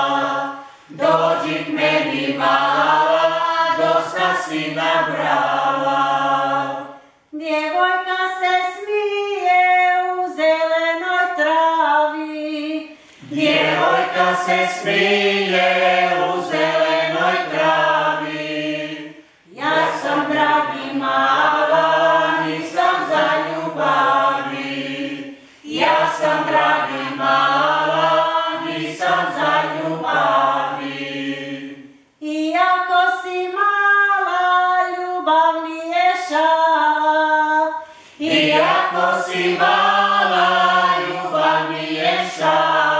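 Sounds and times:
higher voices singing: 0.0 - 7.0, 13.1 - 32.2, 36.3 - 42.9
lower voices singing: 0.0 - 42.9.

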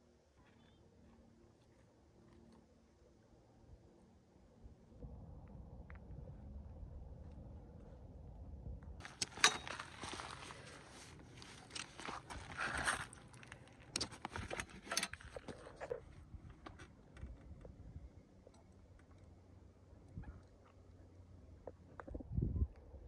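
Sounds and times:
fabric rustling: 9.0 - 13.3
buckles clicking: 9.0 - 16.0.

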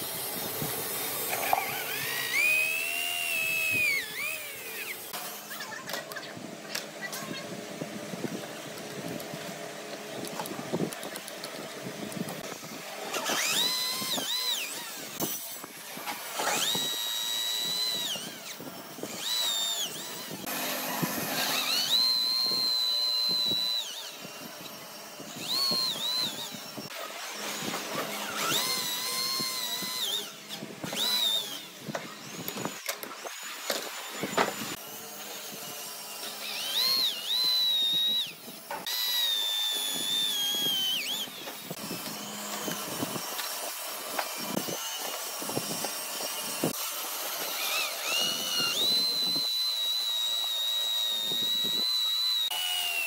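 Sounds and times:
power tool cutting hardwood: 0.0 - 53.0.

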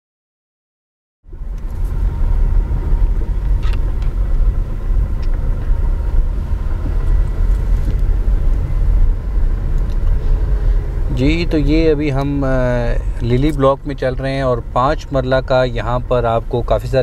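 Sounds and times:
car engine and road rumble: 1.2 - 17.0.

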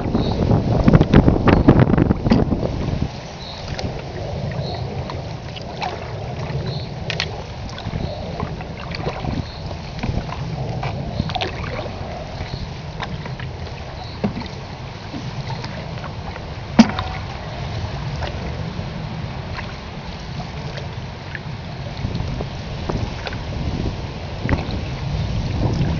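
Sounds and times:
low rumble: 0.0 - 25.9
paddle splashing water: 0.0 - 25.9
knocks on canoe hull: 16.8 - 17.3.

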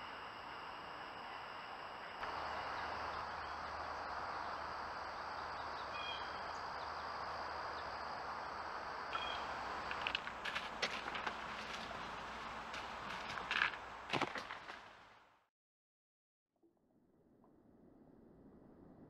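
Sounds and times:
night insects trilling: 0.0 - 14.6
steady hiss with low hum: 0.0 - 15.4
bird chirp: 2.2 - 8.0, 9.1 - 9.7.

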